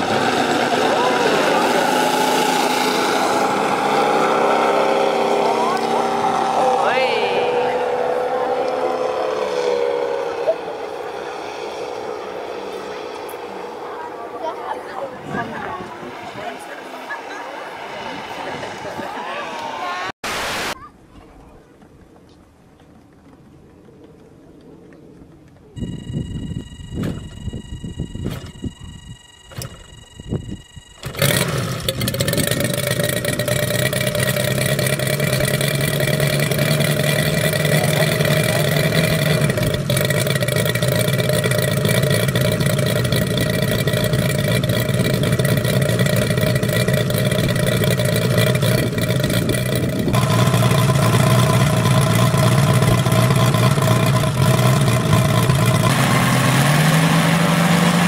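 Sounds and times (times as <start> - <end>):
model radial engine running: 25.8 - 58.0
engine starting pops: 26.0 - 55.9.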